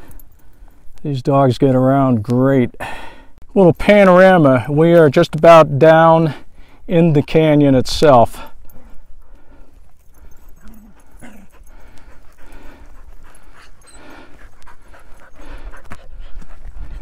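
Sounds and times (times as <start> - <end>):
heavy panting breaths: 0.0 - 1.0, 2.8 - 3.4, 6.2 - 6.9, 8.3 - 17.0.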